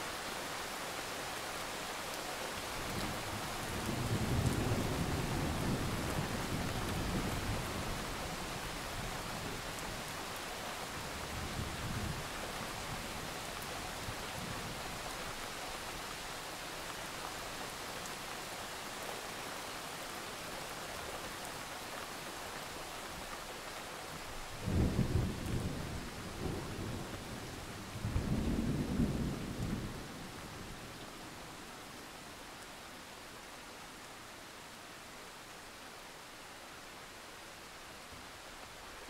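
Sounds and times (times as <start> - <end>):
steady rain: 0.0 - 39.0
low rolls of thunder: 24.6 - 30.7.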